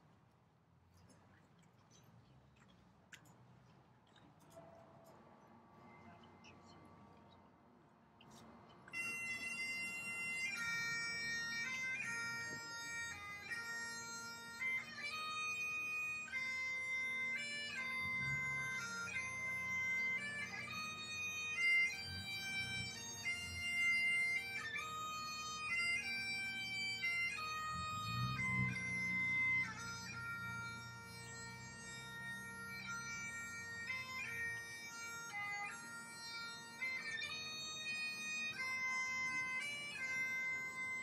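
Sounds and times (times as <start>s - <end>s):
bagpipes playing slow melody: 8.3s - 41.0s.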